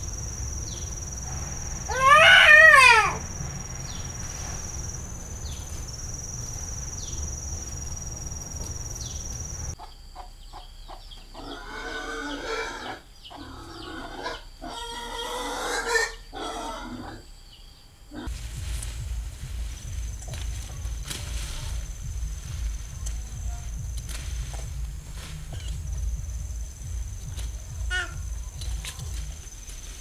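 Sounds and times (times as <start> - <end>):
high-pitched whine: 0.0 - 9.8
low rumble: 0.0 - 9.8, 18.3 - 30.0.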